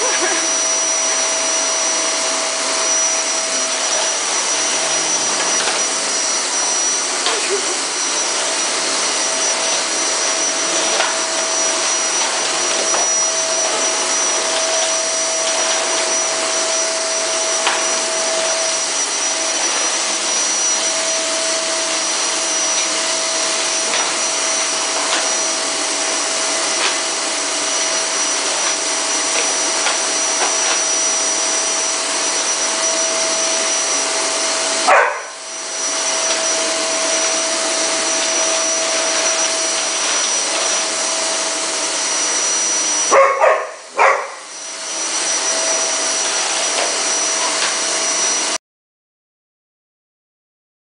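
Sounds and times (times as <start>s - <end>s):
vacuum cleaner running: 0.0s - 48.6s
dog barking: 34.9s - 35.4s, 43.1s - 44.5s.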